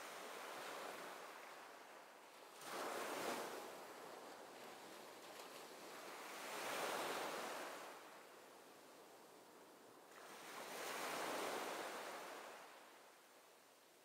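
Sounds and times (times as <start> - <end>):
surf washing on sandy beach: 10.1 - 13.1.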